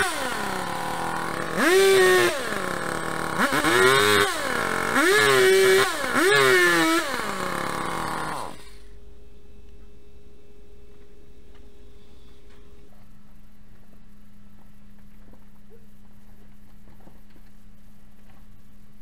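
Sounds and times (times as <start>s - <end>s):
chainsaw revving and idling: 0.0s - 9.0s.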